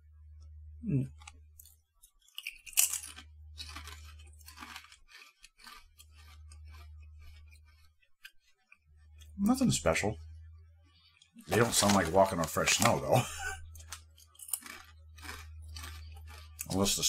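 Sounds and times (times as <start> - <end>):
potato chip crunching: 1.0 - 9.6, 11.0 - 17.0
low hum: 5.8 - 17.0.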